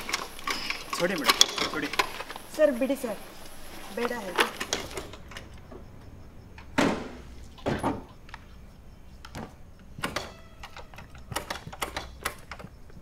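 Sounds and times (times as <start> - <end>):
scooter mechanical clicks and knocks: 7.6 - 13.0.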